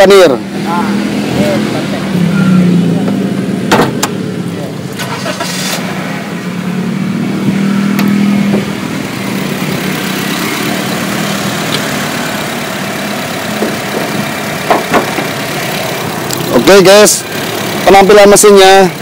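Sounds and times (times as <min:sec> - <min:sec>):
car engine idling: 0:00.0 - 0:19.0
car bonnet knocks: 0:03.7 - 0:04.1, 0:13.6 - 0:15.3.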